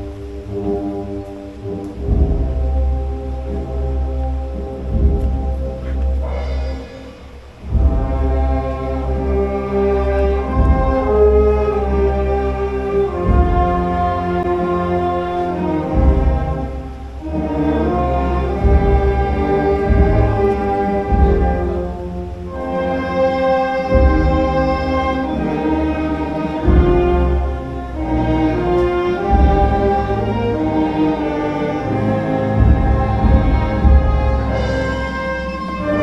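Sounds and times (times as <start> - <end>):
orchestral music: 0.0 - 36.0.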